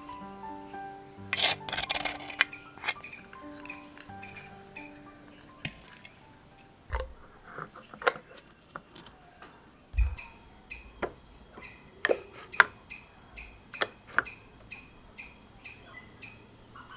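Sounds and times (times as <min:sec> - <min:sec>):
bird chirping: 0:00.0 - 0:16.9
glass jars clicking: 0:01.3 - 0:09.1, 0:11.6 - 0:12.8.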